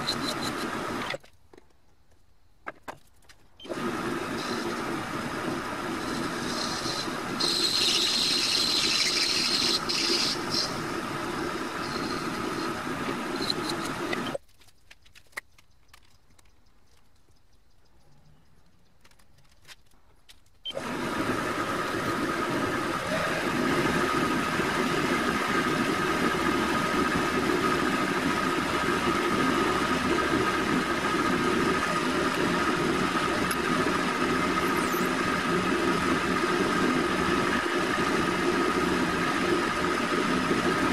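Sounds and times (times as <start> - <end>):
high squeal of cutting tool: 0.0 - 0.8, 6.0 - 14.4
drill boring into brass: 0.0 - 1.1, 3.6 - 14.4
lathe running: 0.0 - 1.2, 3.6 - 14.4, 20.7 - 40.9.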